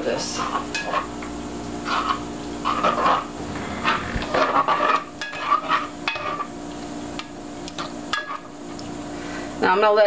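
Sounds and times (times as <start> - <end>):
fat sizzling: 0.3 - 9.1
plastic spoon scraping a pan: 1.8 - 6.6.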